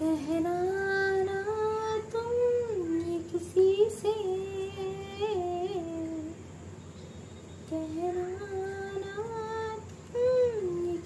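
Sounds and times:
faint clicks: 0:09.7 - 0:10.4.

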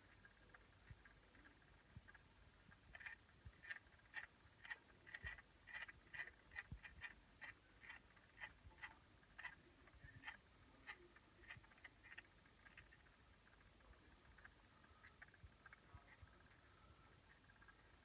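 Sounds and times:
turntable faint uneven clicking: 0:00.0 - 0:18.0.

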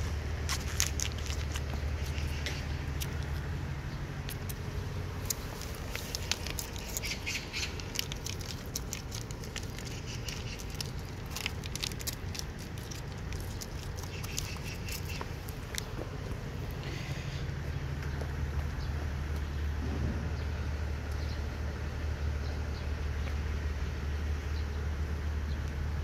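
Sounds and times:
cats chewing wet food: 0:00.0 - 0:19.4.

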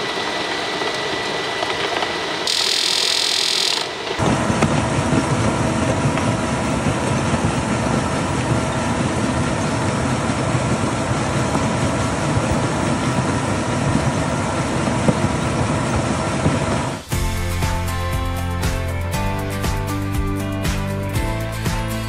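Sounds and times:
concrete conveyor mechanical clatter: 0:04.2 - 0:17.1.

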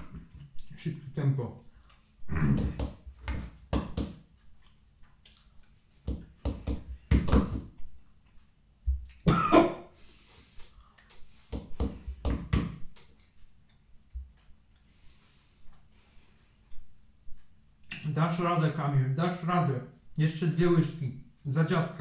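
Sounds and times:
mouth noises and clicks: 0:04.4 - 0:06.2, 0:10.3 - 0:11.7, 0:12.5 - 0:13.8, 0:17.8 - 0:18.2
cough-like burst: 0:09.3 - 0:09.9.

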